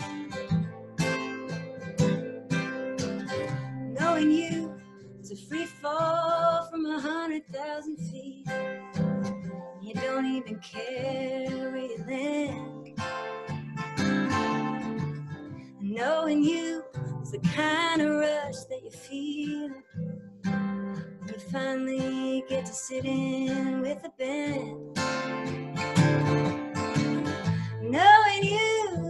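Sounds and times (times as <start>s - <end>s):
acoustic guitar: 0.0s - 29.0s
woman singing: 3.5s - 8.8s, 9.6s - 12.9s, 15.8s - 20.0s, 20.9s - 25.0s, 27.2s - 29.0s.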